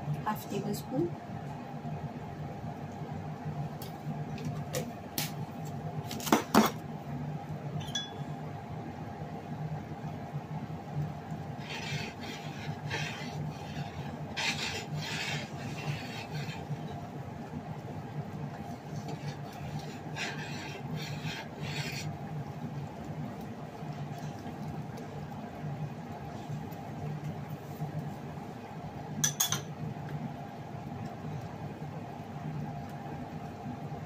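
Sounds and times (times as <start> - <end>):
low steady hum: 6.8 - 34.0
utensil scraping and stirring soup: 11.2 - 17.9, 18.5 - 25.1.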